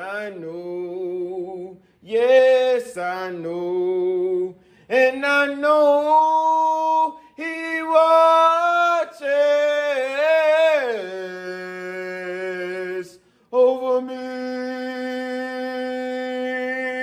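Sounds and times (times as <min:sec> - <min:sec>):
man singing a hymn a cappella: 0:00.0 - 0:17.0
man taking a breath: 0:04.6 - 0:04.9, 0:13.2 - 0:13.5.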